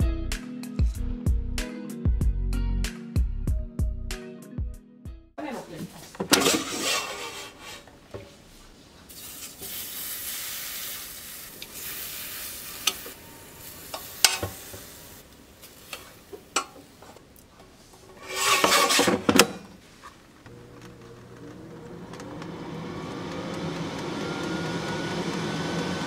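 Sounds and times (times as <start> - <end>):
air fryer basket scraping rattle: 6.2 - 7.9, 18.1 - 19.6
pork sizzling: 9.1 - 16.6.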